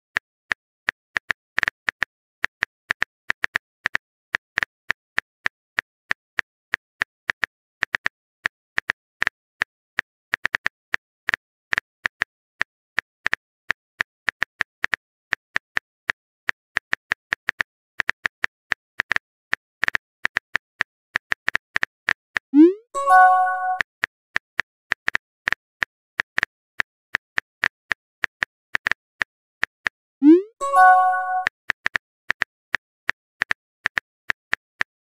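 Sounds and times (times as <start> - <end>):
short chime: 23.0 - 23.8, 30.6 - 31.5.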